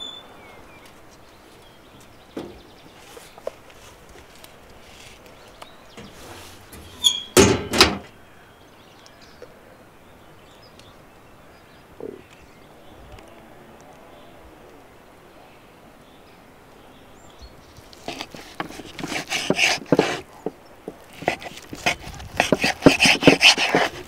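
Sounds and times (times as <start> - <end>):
metal door scraping clatters: 6.0 - 8.1
metal door squeak: 6.0 - 8.1.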